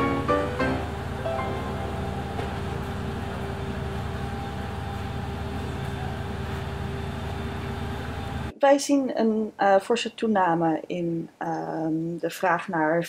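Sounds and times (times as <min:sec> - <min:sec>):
faint hum: 0:00.0 - 0:08.5
low rumble of traffic: 0:00.0 - 0:08.5.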